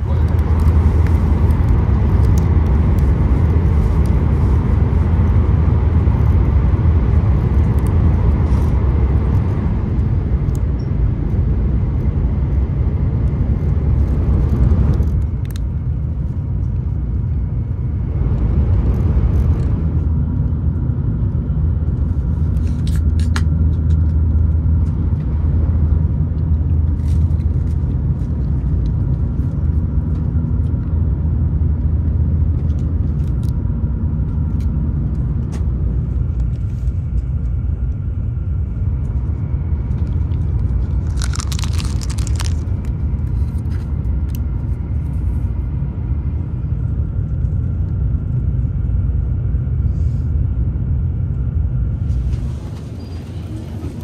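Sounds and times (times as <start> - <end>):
train cabin rumble and hiss: 0.0 - 11.6, 48.8 - 54.0.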